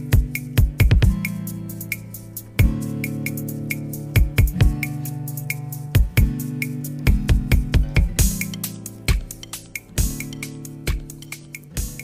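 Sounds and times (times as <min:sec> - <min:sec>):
low drum thumps: 0:07.1 - 0:08.5.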